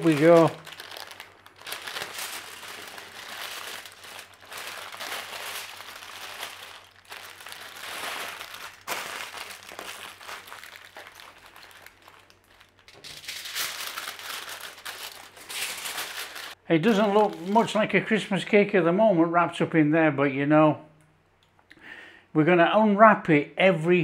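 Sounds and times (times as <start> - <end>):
foil and paper crinkling: 0.0 - 17.8.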